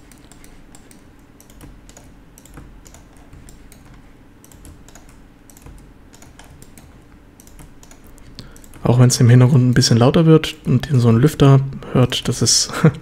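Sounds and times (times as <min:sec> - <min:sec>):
keyboard keystrokes and clicks: 0:00.0 - 0:09.0
laptop cooling fan whir: 0:00.0 - 0:13.0.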